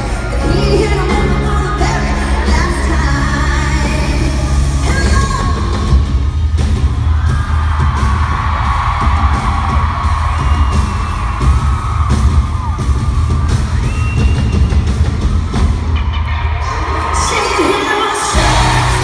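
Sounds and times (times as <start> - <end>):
live band playing: 0.0 - 19.0
crowd yelling: 6.4 - 19.0.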